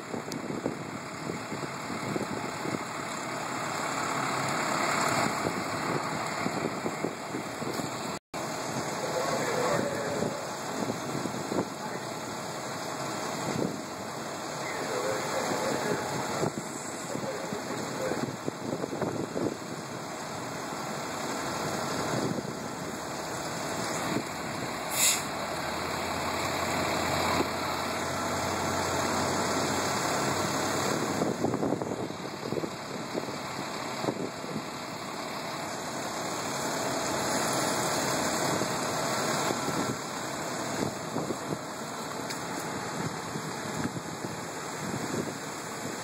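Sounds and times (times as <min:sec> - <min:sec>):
fire truck engine running: 0:00.0 - 0:46.0
high hiss: 0:24.8 - 0:25.4.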